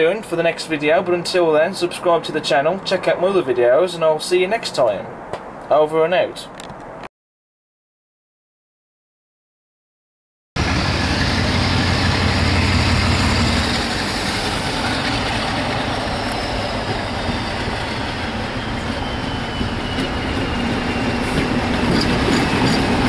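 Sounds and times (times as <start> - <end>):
diesel locomotive engine: 10.6 - 23.0
wheels clicking over rail joints: 13.7 - 23.0.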